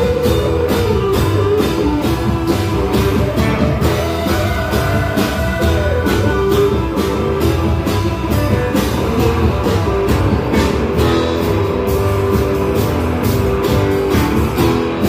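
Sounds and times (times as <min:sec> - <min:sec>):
live rock band playing: 0:00.0 - 0:15.0.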